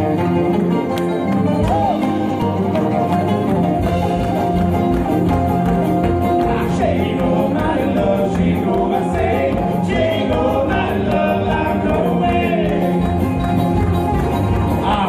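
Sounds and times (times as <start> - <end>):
bluegrass band playing: 0.0 - 15.0
voices singing together: 6.4 - 13.4.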